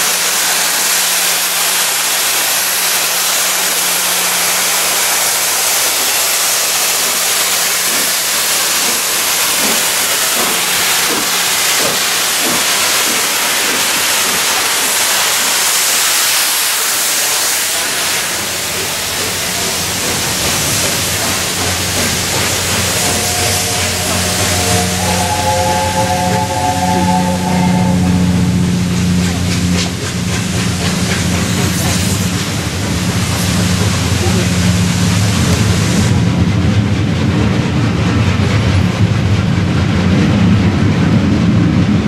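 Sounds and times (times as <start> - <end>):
steam venting hiss: 0.0 - 36.1
steam whistle: 20.8 - 30.3.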